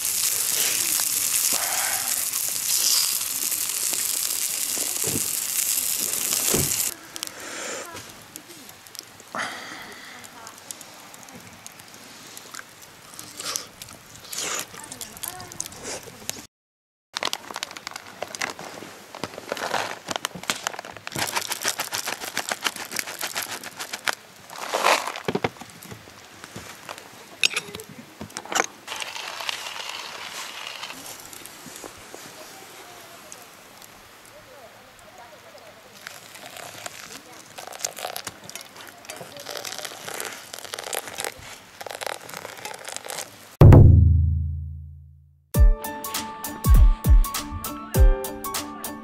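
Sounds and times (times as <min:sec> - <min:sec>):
material crinkling and rustling: 0:00.0 - 0:07.0, 0:17.2 - 0:33.4, 0:35.9 - 0:43.6
fast crackling clicks: 0:00.0 - 0:07.4, 0:19.2 - 0:25.4, 0:28.6 - 0:32.0, 0:36.0 - 0:43.6
food sizzling in a pan: 0:00.0 - 0:09.1, 0:28.9 - 0:33.9.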